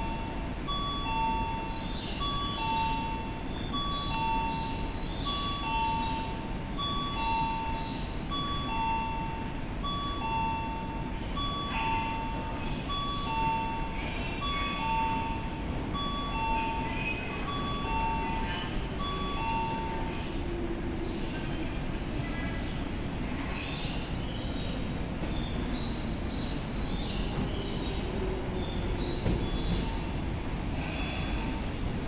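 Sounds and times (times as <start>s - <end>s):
two-note electronic chime: 0.0s - 20.2s
station background noise: 0.0s - 32.0s.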